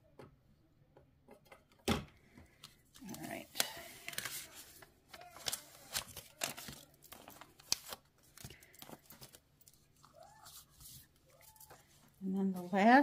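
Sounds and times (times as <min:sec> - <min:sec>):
paper rustling and crinkling: 0:02.9 - 0:13.0.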